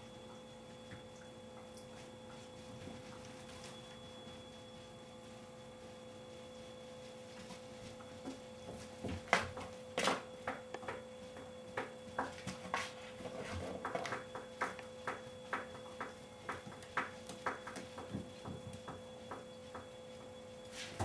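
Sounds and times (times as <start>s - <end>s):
faint electrical hum: 0.0s - 21.0s
animals scuffling on rug: 2.0s - 9.7s.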